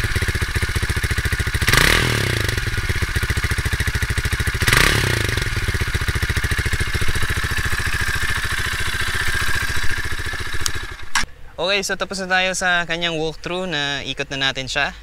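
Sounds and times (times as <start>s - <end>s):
engine revving: 0.0s - 11.2s
motorcycle engine idling: 0.0s - 11.3s.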